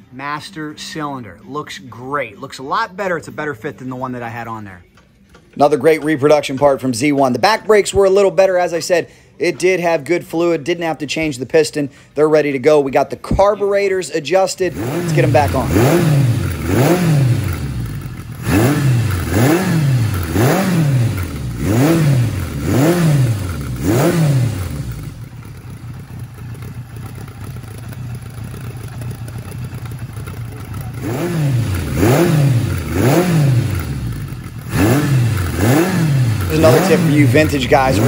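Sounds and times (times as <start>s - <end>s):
motorcycle engine revving and idling: 14.5s - 38.0s.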